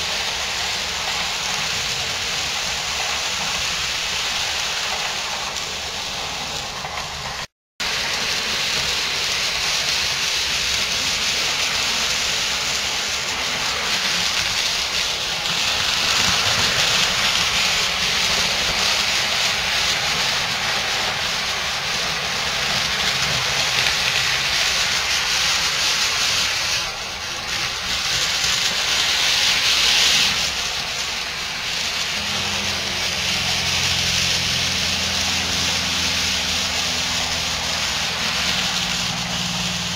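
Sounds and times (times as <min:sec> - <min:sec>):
model trains rolling on track: 0:00.0 - 0:39.9.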